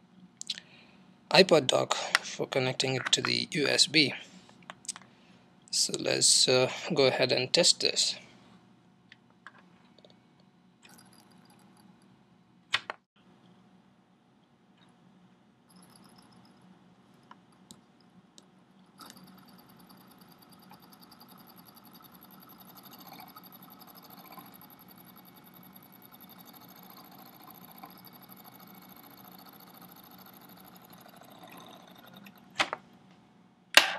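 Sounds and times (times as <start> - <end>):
small motor buzzing rattle: 10.8 - 12.1, 15.7 - 16.6, 18.8 - 32.6.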